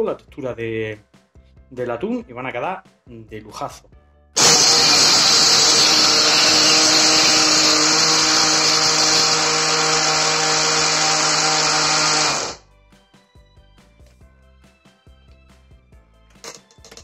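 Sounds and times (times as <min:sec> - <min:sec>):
faint background music: 0:00.0 - 0:04.4, 0:12.6 - 0:17.0
hand blender motor running: 0:04.4 - 0:12.6.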